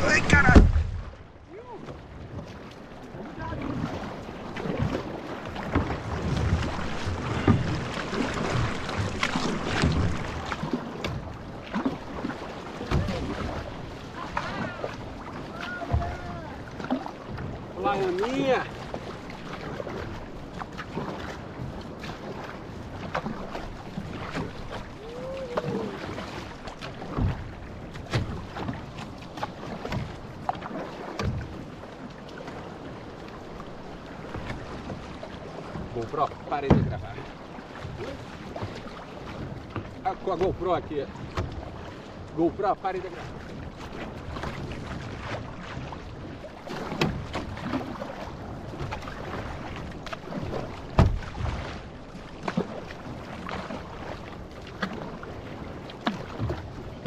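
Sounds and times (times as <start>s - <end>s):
paddle splashing into water: 0.0s - 57.0s
rushing water: 0.0s - 57.0s
loud thump: 0.2s - 1.2s.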